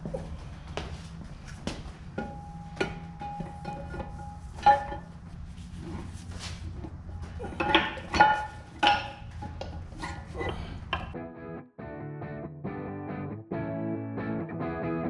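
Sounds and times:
low hum: 0.0 - 11.2.

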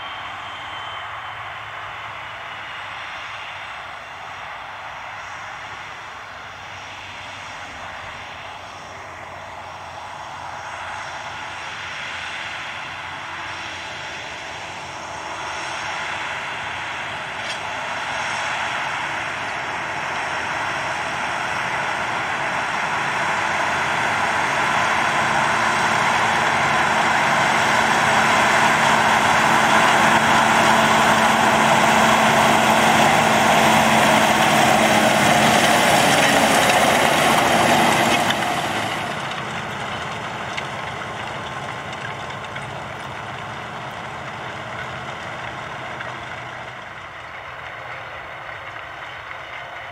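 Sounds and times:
tractor engine under load: 12.4 - 49.9
tracks and discs working soil: 16.9 - 49.9.

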